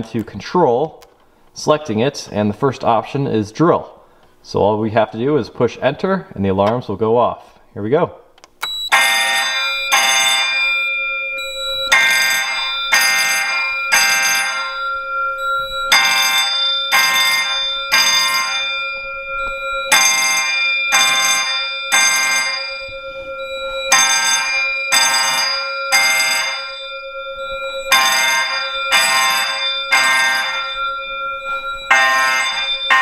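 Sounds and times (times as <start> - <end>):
fire alarm bell ringing: 8.6 - 33.0
fire alarm horn pulses: 8.6 - 33.0.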